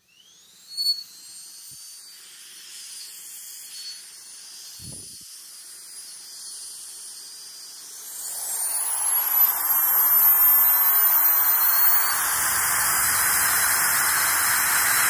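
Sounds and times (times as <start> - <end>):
electric air blower running: 7.8 - 15.0.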